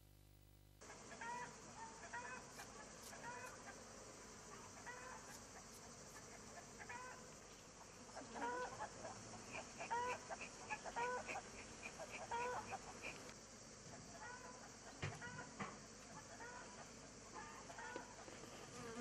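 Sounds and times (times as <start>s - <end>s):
steady high hiss: 0.0s - 19.0s
chickens clucking: 8.1s - 13.3s.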